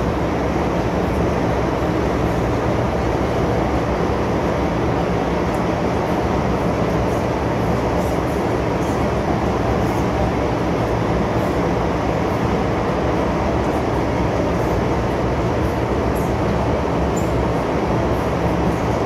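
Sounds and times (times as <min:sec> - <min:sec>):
train car rumble: 0:00.0 - 0:19.0
train wheels on rails: 0:00.0 - 0:19.0.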